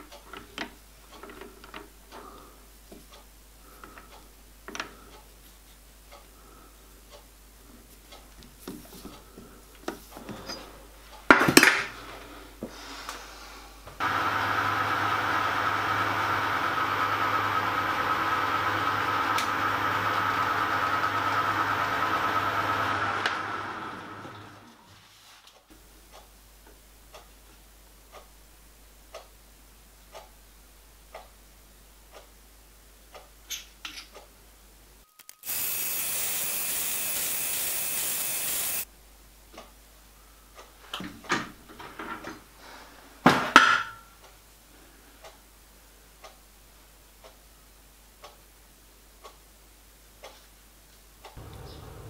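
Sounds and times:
lathe running with hum and whine: 14.0 - 24.8, 51.4 - 52.0.

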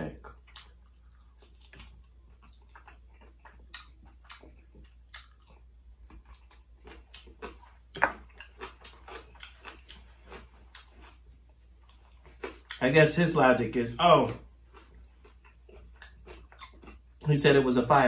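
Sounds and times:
crunchy chewing: 0.2 - 12.9, 14.0 - 17.4.

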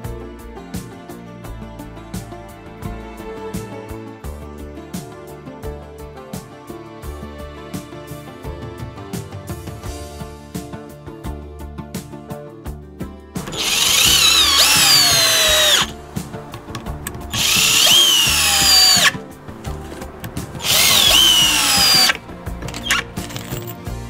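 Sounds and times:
background music: 0.0 - 24.0
cordless drill driving screws: 13.4 - 16.0, 16.6 - 23.8.

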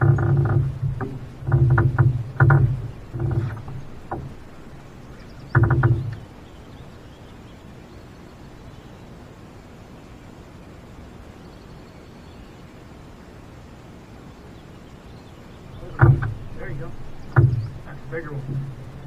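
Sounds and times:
electric boat motor humming: 0.0 - 6.9, 15.7 - 19.0
low steady background: 0.0 - 19.0.

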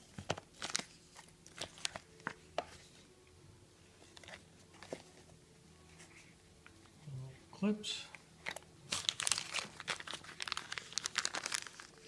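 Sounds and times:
plastic packaging crinkling: 0.3 - 2.1, 8.4 - 12.0.

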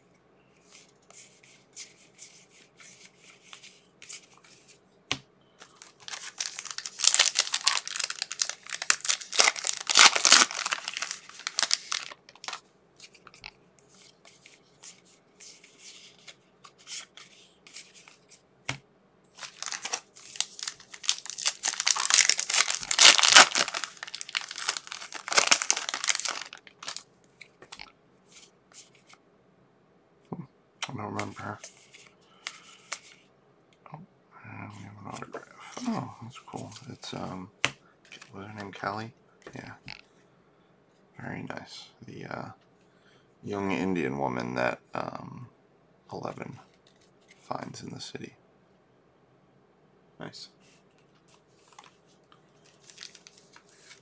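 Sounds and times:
foil wrapper crackling: 5.7 - 12.6, 19.4 - 27.0, 52.7 - 54.0.

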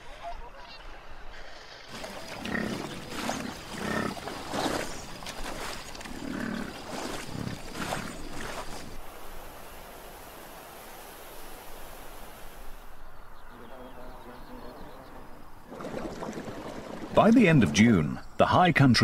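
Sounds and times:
bison grunting: 1.9 - 9.0.

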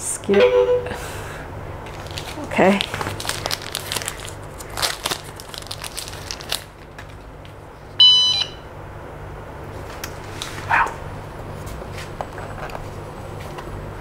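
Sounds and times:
short high electronic beep: 0.3 - 1.0
plastic wrapper rustling: 1.9 - 7.6.

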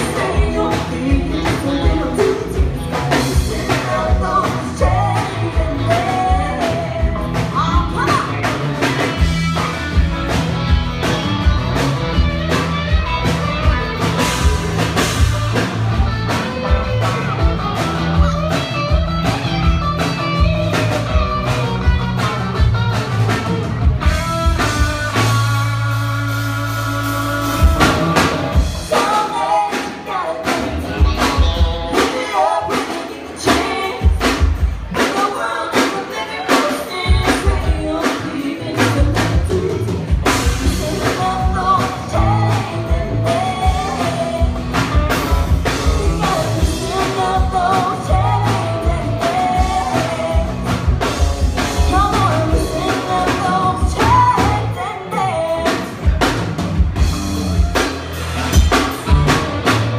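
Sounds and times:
women singing: 0.0 - 8.4, 28.8 - 44.6, 45.8 - 50.7, 51.7 - 55.9
electric bass: 0.0 - 32.5, 37.0 - 59.9
drums: 0.0 - 59.9
electric guitar: 0.0 - 59.9.

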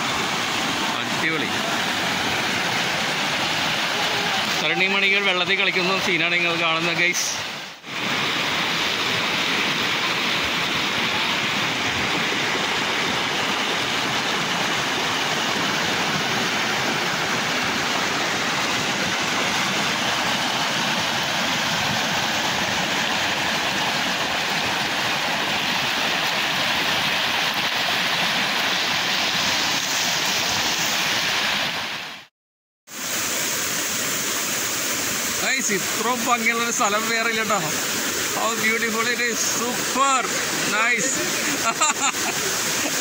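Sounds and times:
river water rushing over rapids: 0.0 - 32.3, 32.9 - 43.0.

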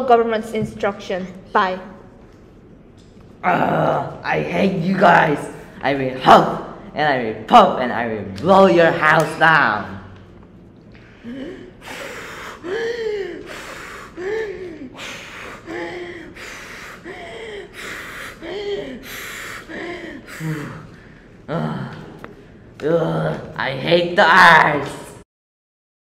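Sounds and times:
child gasping: 11.1 - 21.2.

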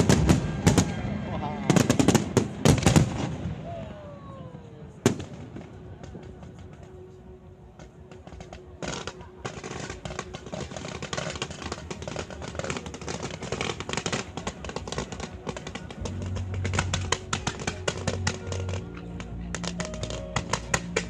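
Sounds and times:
fireworks crackling: 0.0 - 4.4, 5.0 - 21.0
low steady notes: 0.0 - 21.0
music playing: 6.6 - 21.0.

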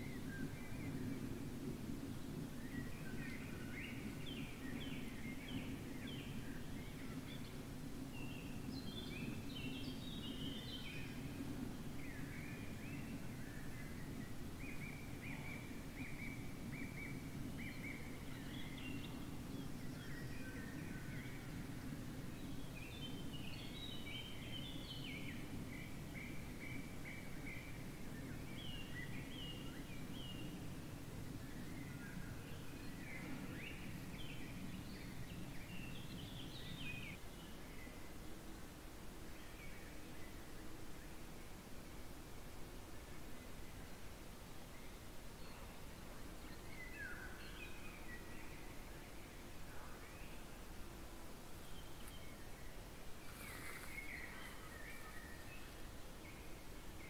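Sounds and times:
birds singing: 8.2 - 30.7, 44.7 - 50.6, 51.5 - 57.0.

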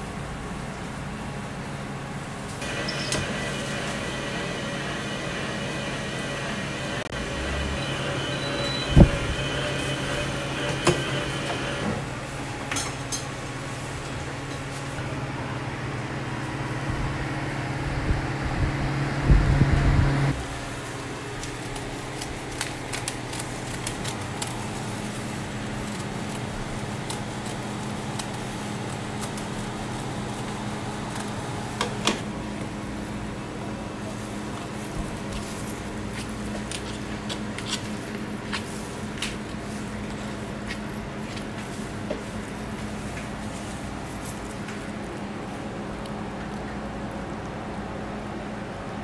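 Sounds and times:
fan and machinery hum: 0.0 - 49.0
loud motor running: 2.6 - 12.1.

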